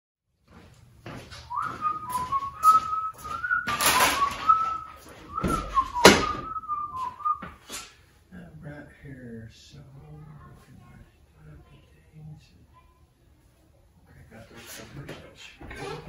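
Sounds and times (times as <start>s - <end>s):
footsteps: 0.4s - 8.0s
person whistling a tune: 1.5s - 7.5s
loud door clunk: 5.4s - 6.6s.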